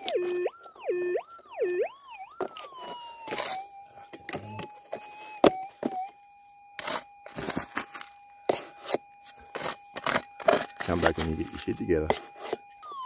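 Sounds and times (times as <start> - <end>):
gravelly dirt scraping by hand: 6.8 - 12.6
metal detector tone: 6.8 - 13.0.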